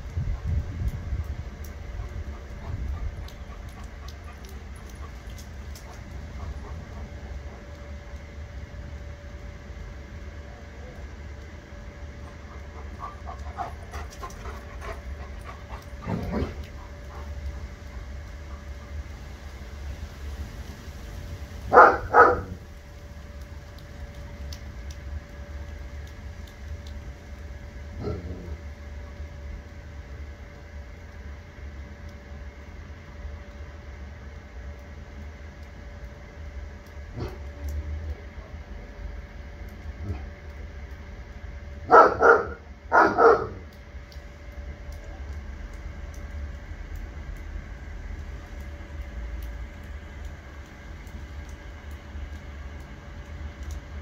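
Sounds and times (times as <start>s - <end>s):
low rumble: 0.0s - 33.7s
dog barking: 21.7s - 22.6s, 41.9s - 43.6s.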